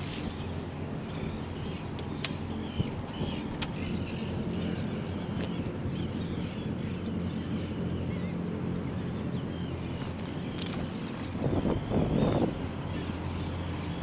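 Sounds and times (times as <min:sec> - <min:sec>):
boat engine idling: 0:00.0 - 0:14.0
high bird calls: 0:00.1 - 0:14.0.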